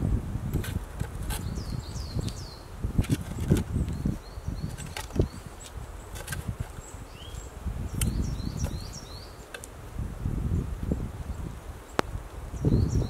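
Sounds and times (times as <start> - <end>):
small birds chirping: 0.4 - 13.0
metal spade scraping soil: 0.5 - 1.8, 3.0 - 3.8, 4.6 - 6.9
thuds and rustles of earth: 3.0 - 6.9.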